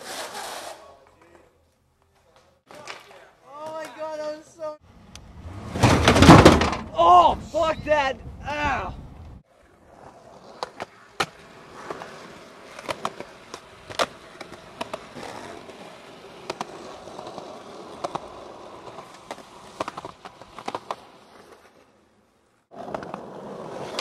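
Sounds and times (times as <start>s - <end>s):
skateboard wheels rolling on asphalt: 8.5s - 24.0s
skateboard clacking on pavement: 10.4s - 21.7s.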